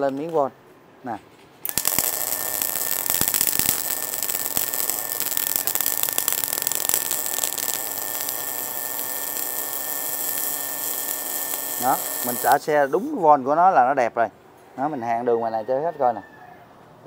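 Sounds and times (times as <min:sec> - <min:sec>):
welding arc crackling hiss: 0:01.6 - 0:13.3.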